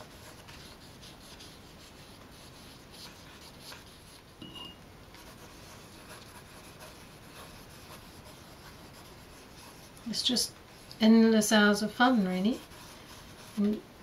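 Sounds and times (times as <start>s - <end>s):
paintbrush scratching on paper: 0.0s - 4.3s, 5.2s - 10.9s, 11.8s - 13.7s.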